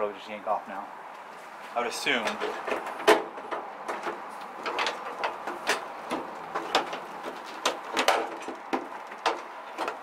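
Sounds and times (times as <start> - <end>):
plastic grille creaking and clicking: 2.3 - 10.0.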